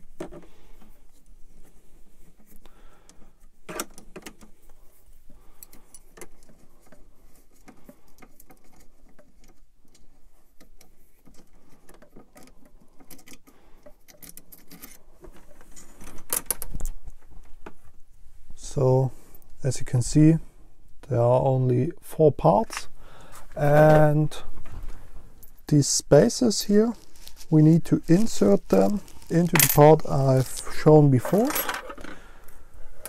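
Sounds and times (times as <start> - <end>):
metal parts clattering: 28.2 - 32.2.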